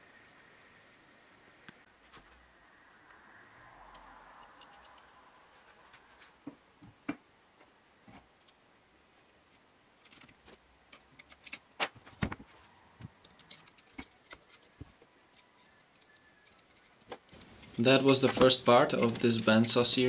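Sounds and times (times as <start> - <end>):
metal bracket clicks and clinks: 17.6 - 20.0.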